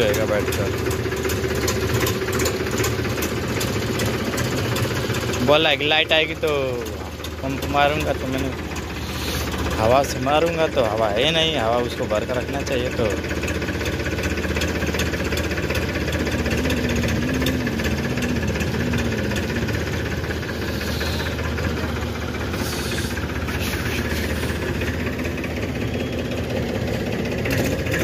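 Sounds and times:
tractor diesel engine clattering: 0.0 - 28.0.

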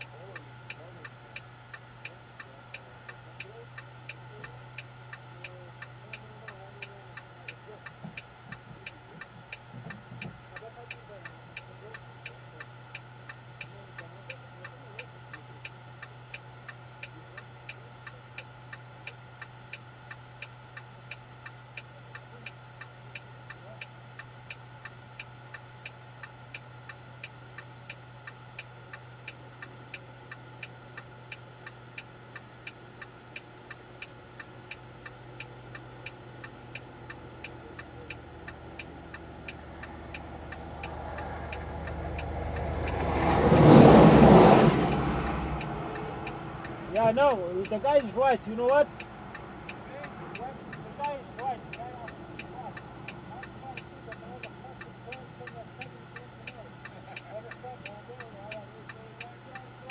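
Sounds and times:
steady low hum: 0.0 - 59.9
vehicle approaching: 26.2 - 59.9.

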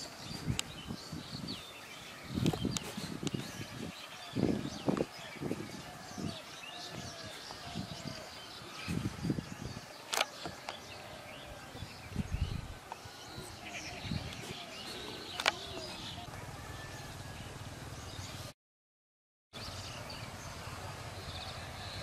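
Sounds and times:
birds chirping: 0.0 - 18.5, 19.6 - 22.0.

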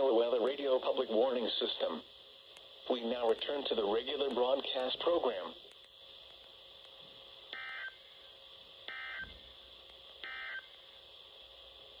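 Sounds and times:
faint steady hiss: 0.0 - 12.0
buzzy digital data bursts: 7.5 - 9.4, 10.2 - 11.0.

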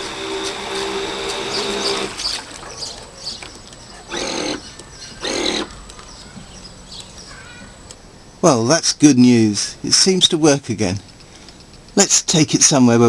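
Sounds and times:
electric boat motor whining: 0.0 - 2.4, 4.1 - 4.6, 5.2 - 5.7.

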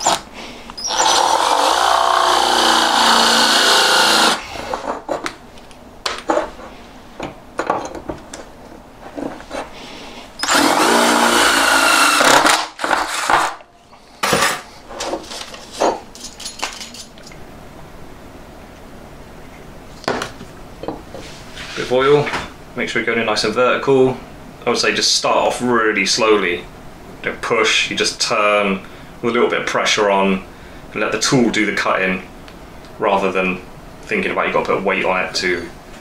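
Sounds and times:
electric drill drilling metal: 0.0 - 0.2, 0.8 - 4.4, 10.4 - 13.4.

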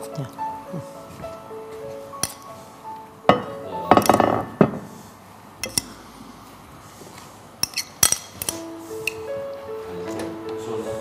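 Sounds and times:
plates and cutlery clattering: 3.3 - 4.9.

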